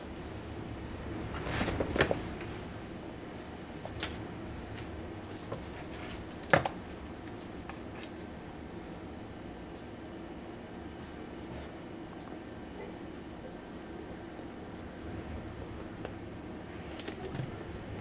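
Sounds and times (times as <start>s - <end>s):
cats scratching cardboard: 3.5s - 8.3s.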